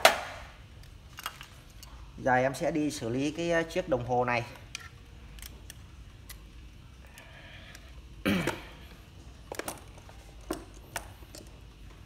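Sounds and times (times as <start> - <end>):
person coughing: 8.2 - 8.8.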